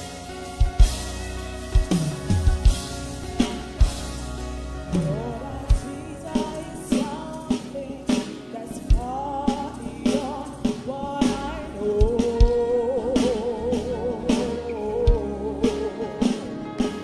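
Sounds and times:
gospel band playing: 0:00.0 - 0:17.0
person singing with vibrato: 0:04.9 - 0:17.0.

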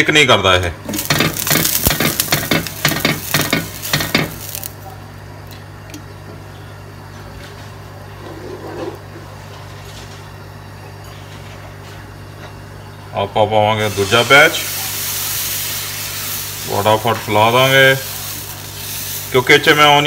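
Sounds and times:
onion sizzling and scraping on griddle: 0:00.9 - 0:04.9, 0:13.9 - 0:20.0.

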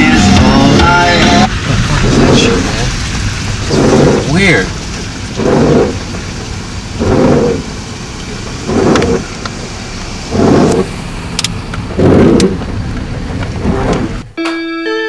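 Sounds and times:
music: 0:00.0 - 0:01.5, 0:14.4 - 0:15.0
rain on car: 0:00.0 - 0:14.3
low car noise: 0:00.0 - 0:14.4.

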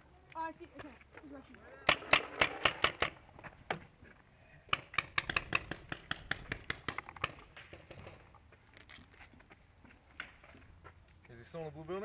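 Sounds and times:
rapid paintball fire pops: 0:04.7 - 0:08.2.

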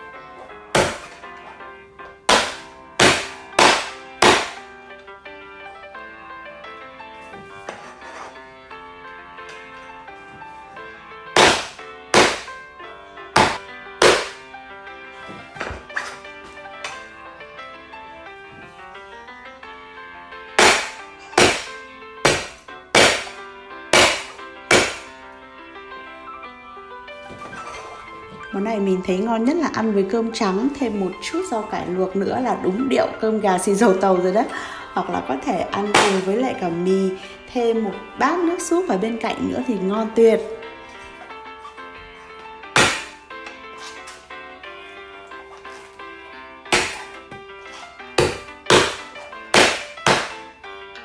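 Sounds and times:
background music: 0:00.0 - 0:51.0
cleaver chopping onto cutting board: 0:02.3 - 0:04.6, 0:11.4 - 0:12.5, 0:13.4 - 0:14.4, 0:20.6 - 0:23.4, 0:24.0 - 0:25.0, 0:42.8 - 0:43.2, 0:46.8 - 0:47.1, 0:48.2 - 0:50.4.

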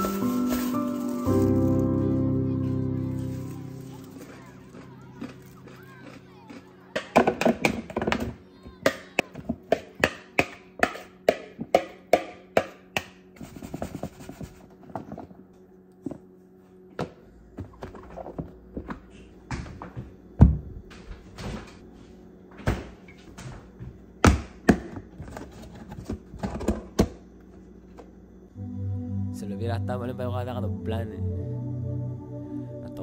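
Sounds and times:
knife chopping on cutting board: 0:09.7 - 0:13.2.

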